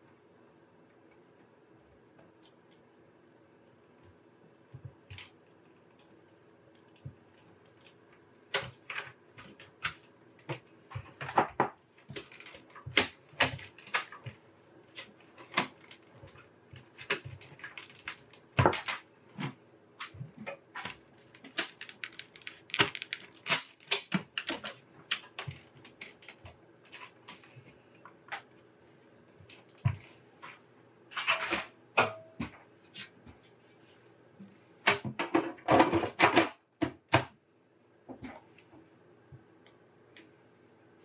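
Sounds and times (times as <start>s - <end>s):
computer case parts clicking and scraping: 8.6s - 28.5s, 29.4s - 33.2s.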